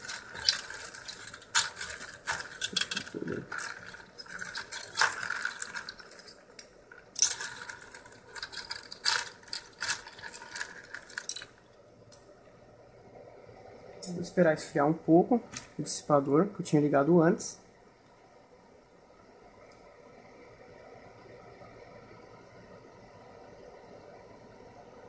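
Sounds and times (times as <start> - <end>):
ice cubes clinking: 0.0 - 11.6.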